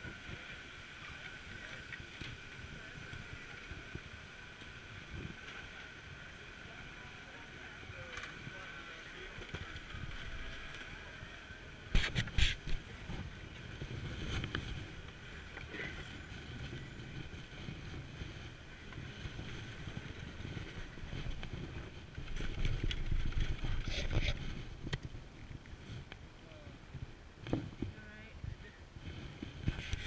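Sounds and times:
chairlift machinery humming: 0:00.0 - 0:24.9
rumble and wind noise: 0:00.0 - 0:30.0.

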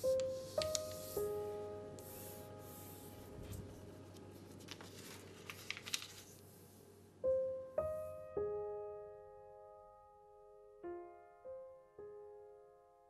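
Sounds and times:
soft piano music: 0:00.0 - 0:13.0
paper rustling: 0:00.2 - 0:01.3, 0:02.0 - 0:06.7.

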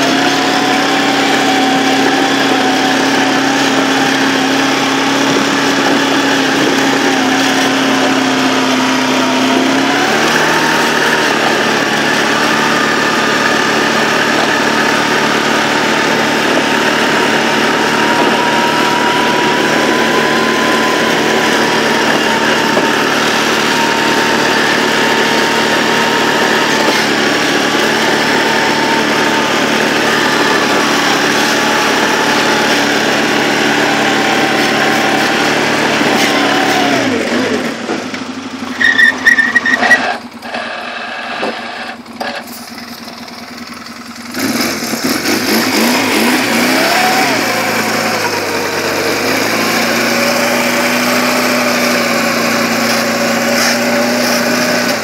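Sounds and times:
atv engine under load: 0:00.0 - 0:55.0.

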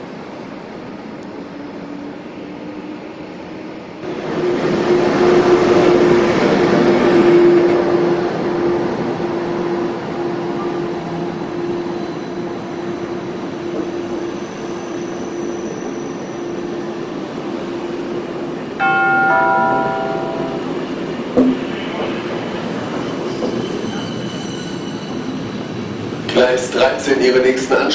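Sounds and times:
train passing: 0:00.0 - 0:27.9
descending ringing tones: 0:18.8 - 0:21.0.

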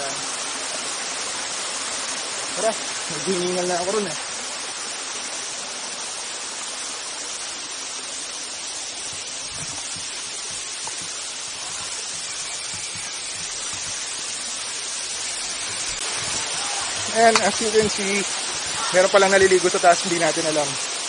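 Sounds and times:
waterfall rushing over rocks: 0:00.0 - 0:21.0
footsteps on rocky trail: 0:09.0 - 0:20.1.

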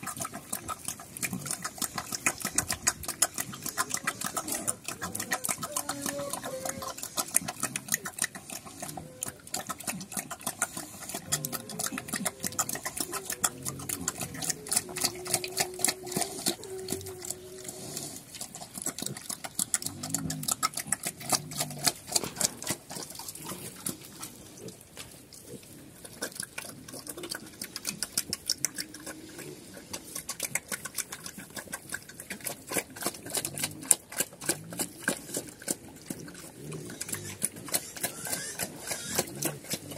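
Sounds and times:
low pig grunts: 0:00.0 - 0:24.8, 0:25.5 - 0:39.9
piglets suckling smacking clicks: 0:00.0 - 0:39.9.

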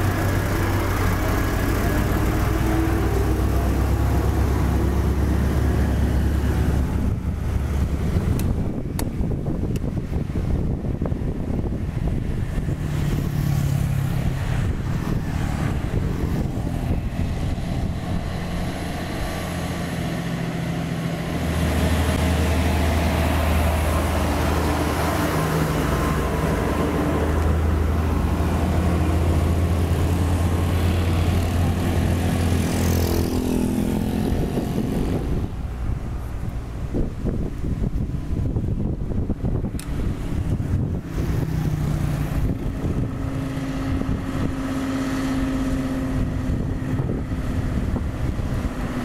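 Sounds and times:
truck diesel engine passing: 0:00.0 - 0:49.0.

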